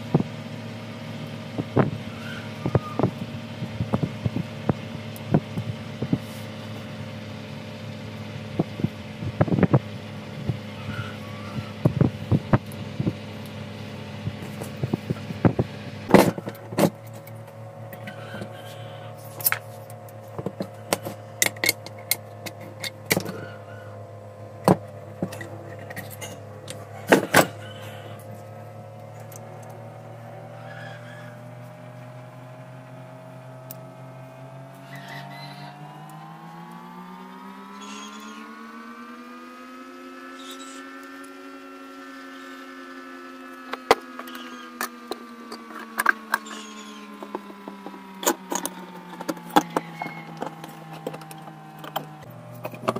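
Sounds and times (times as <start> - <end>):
steady droning hum: 0.0 - 52.9
metal engine parts clicking: 19.2 - 23.9, 24.6 - 28.4, 43.6 - 52.9.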